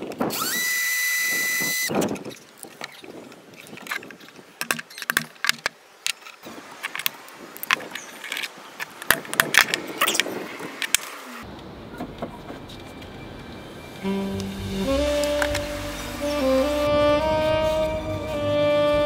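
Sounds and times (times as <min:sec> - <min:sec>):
background music: 0:14.0 - 0:19.0.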